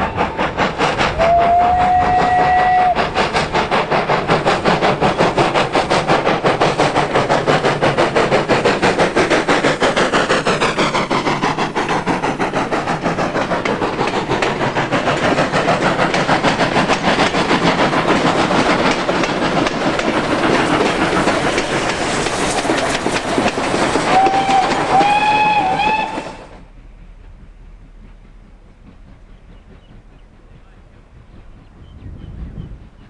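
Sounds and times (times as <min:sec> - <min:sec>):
train wheels clattering over rail joints: 0:00.0 - 0:31.9
steam locomotive whistle blasts: 0:01.1 - 0:03.1, 0:24.1 - 0:26.6.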